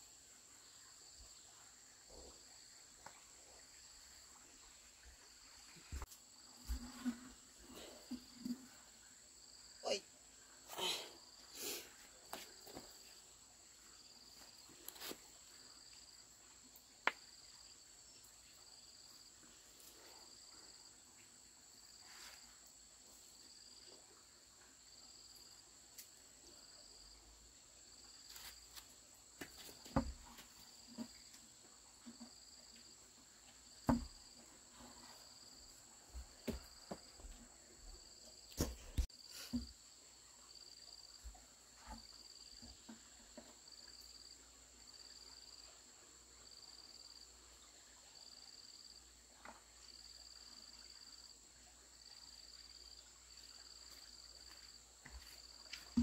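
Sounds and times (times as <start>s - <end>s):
crickets chirping: 0.0s - 56.0s
sharp knocks and thuds: 29.4s - 30.4s, 33.8s - 34.2s.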